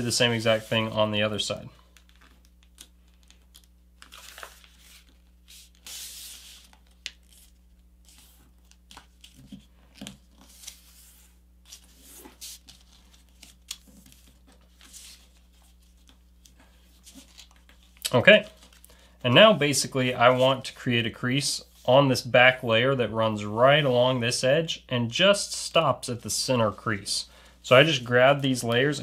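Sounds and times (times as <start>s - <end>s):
paper rustling and crinkling: 1.9s - 18.9s.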